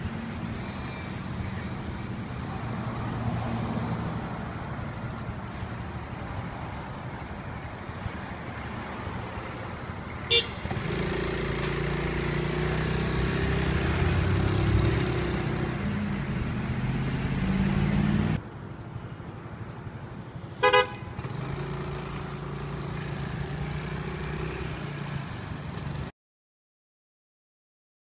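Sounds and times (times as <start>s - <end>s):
road traffic: 0.0s - 26.1s
vehicle horn toot: 10.3s - 10.8s, 20.6s - 21.1s.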